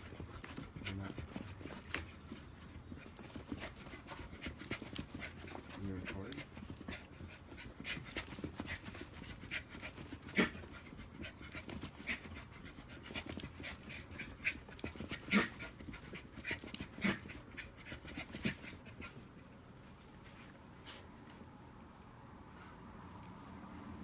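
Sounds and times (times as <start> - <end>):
puppy panting: 0.0 - 19.6.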